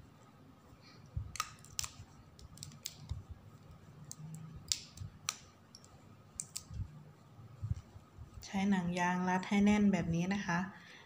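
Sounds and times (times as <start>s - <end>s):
rubber band snaps and paper crinkles: 1.2s - 3.3s, 4.0s - 5.5s.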